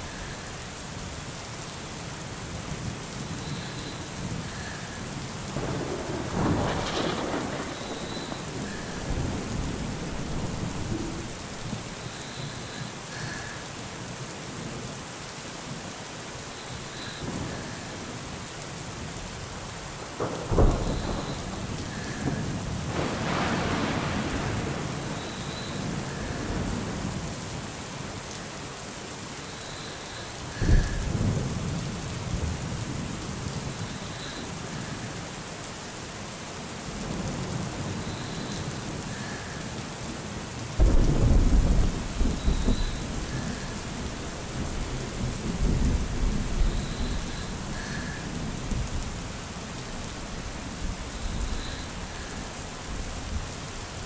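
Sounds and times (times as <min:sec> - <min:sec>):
steady rain: 0:00.0 - 0:54.0
thunder rumbling: 0:03.4 - 0:12.7, 0:20.0 - 0:27.6, 0:30.1 - 0:35.0, 0:40.8 - 0:53.5.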